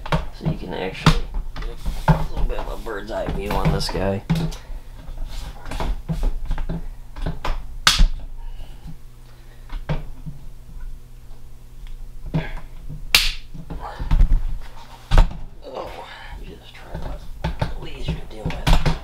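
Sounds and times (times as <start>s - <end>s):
sharp snaps: 7.8s - 8.2s, 13.1s - 13.5s.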